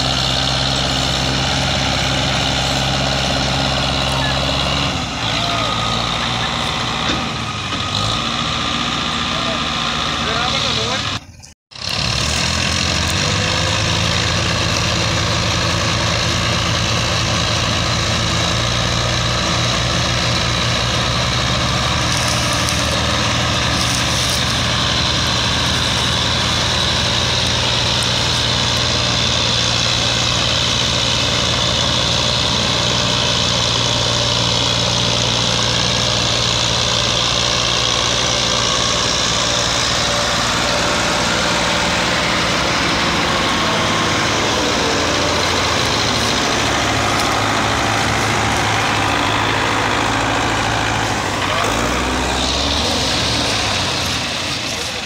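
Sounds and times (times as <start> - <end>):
tractor diesel engines running: 0.0 - 55.0.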